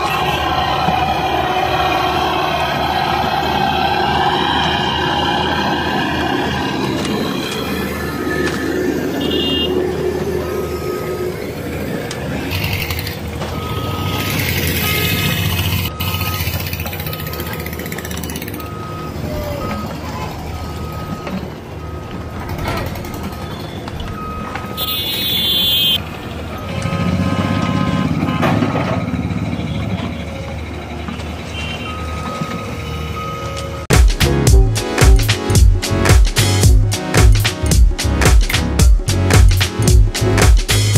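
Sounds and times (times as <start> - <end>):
road roller diesel engine: 0.0 - 40.9
reversing alarm beeps: 9.2 - 11.7, 13.5 - 26.0, 26.6 - 30.9, 31.5 - 33.8.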